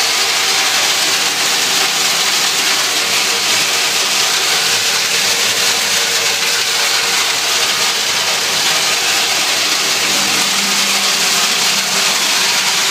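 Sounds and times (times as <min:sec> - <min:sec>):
woodchip blower rushing: 0:08.1 - 0:12.9.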